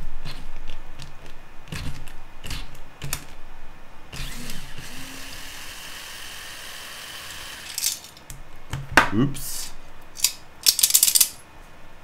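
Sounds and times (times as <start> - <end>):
electric screwdriver whirring: 4.2 - 7.8.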